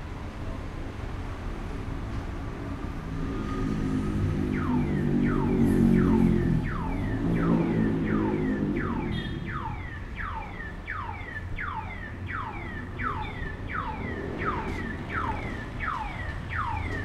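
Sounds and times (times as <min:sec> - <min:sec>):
electronic alarm falling chirp: 0:04.6 - 0:17.0.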